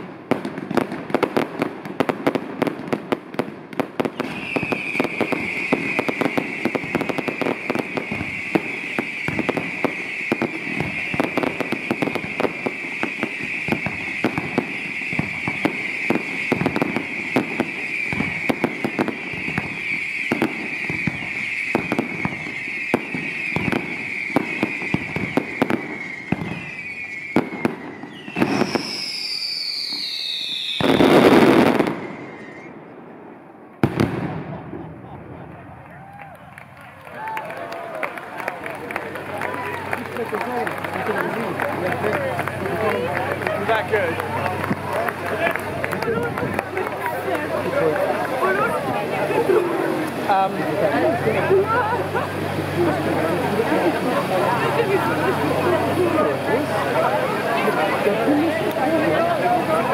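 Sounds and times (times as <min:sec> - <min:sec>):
fireworks whistling: 0:00.0 - 0:36.1, 0:38.4 - 0:59.9
fireworks crackling and banging: 0:00.0 - 0:59.9
falling whistle: 0:04.2 - 0:32.9.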